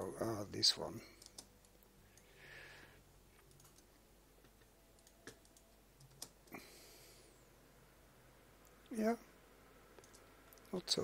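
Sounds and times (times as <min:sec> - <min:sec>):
computer mouse clicks: 0:01.2 - 0:02.3, 0:03.4 - 0:06.6, 0:10.0 - 0:10.7.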